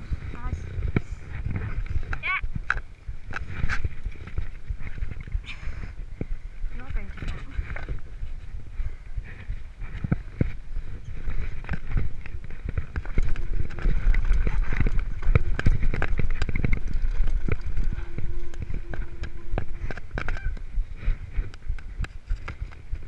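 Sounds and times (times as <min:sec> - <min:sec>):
bike tyres on loose rock: 0:00.0 - 0:23.0
bike frame and chain rattling: 0:06.7 - 0:23.0.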